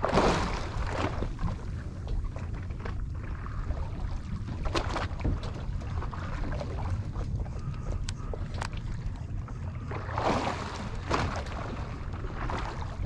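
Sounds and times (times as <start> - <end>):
water lapping against boat hull: 0.0 - 13.0
wind rumbling on microphone: 0.0 - 13.0.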